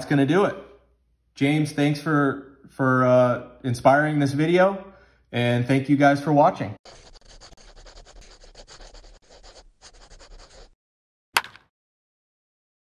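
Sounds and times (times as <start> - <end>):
pen scratching on paper: 6.8 - 10.8.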